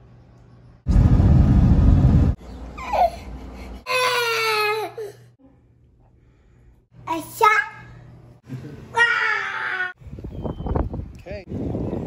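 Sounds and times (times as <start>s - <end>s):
loud deep noise: 0.9s - 2.4s
toddler crying: 3.9s - 5.1s.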